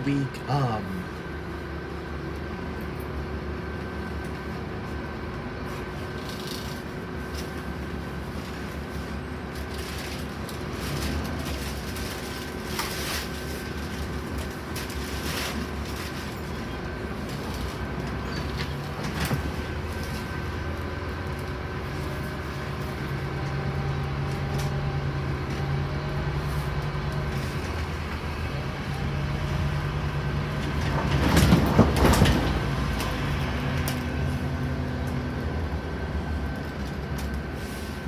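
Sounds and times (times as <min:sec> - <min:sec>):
bus engine and road rumble: 0:00.0 - 0:38.0.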